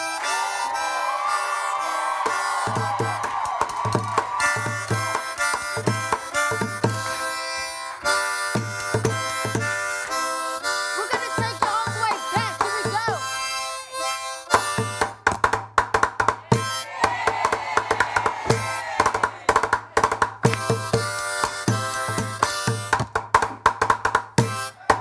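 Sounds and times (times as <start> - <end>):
harmonica playing chords: 0.0 - 3.3, 4.3 - 15.3, 16.5 - 17.0, 20.4 - 23.0, 24.4 - 25.0
bucket drums beat: 2.1 - 25.0.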